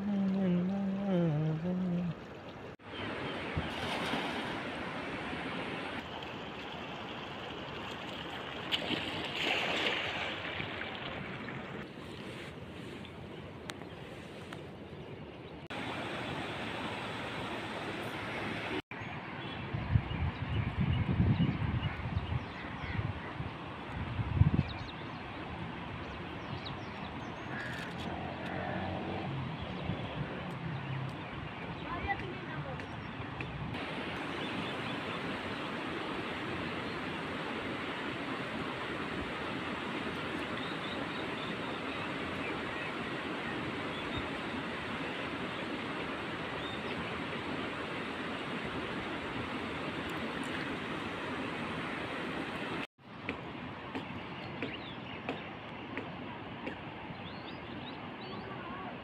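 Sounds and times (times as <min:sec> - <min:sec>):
wind: 0:00.0 - 0:59.0
river water rushing over stones: 0:02.8 - 0:11.9, 0:15.7 - 0:18.8, 0:33.8 - 0:52.9.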